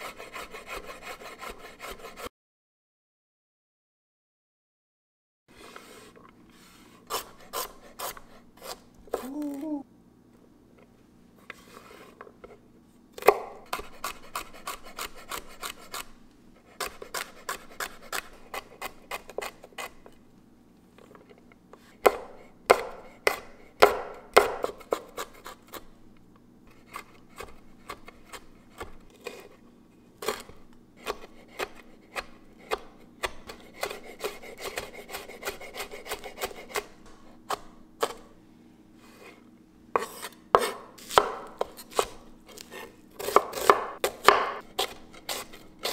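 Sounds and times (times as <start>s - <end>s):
knife chopping on wooden board: 13.2s - 16.0s, 22.0s - 25.5s, 31.0s - 36.9s, 40.0s - 45.9s.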